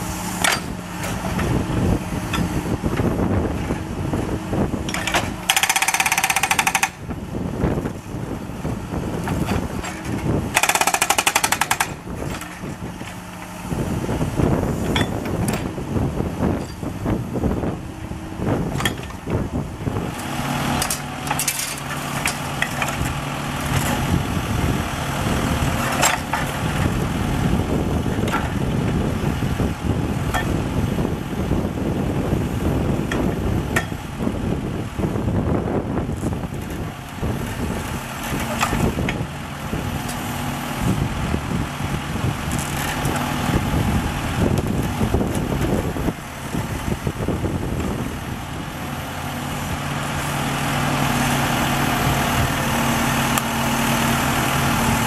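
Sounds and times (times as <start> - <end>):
steady engine hum: 0.0 - 55.0
hydraulic breaker hammering: 4.7 - 7.1, 9.2 - 13.2.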